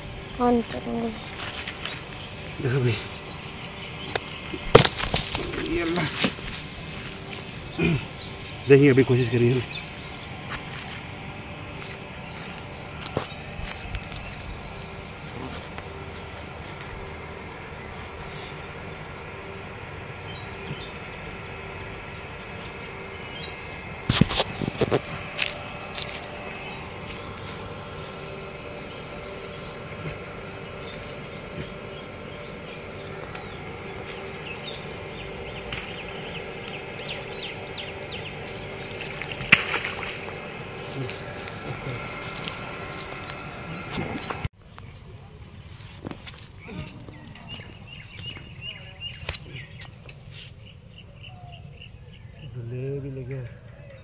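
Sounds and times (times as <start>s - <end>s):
small birds chirping: 0.0s - 45.2s, 46.0s - 54.0s
faint hum: 0.0s - 54.0s
fishing line splashing into water: 39.2s - 40.2s.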